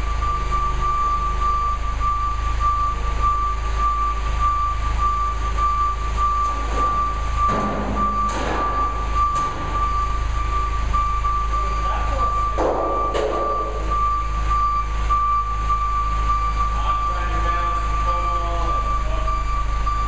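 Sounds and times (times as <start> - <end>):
forklift engine running: 0.0 - 20.0.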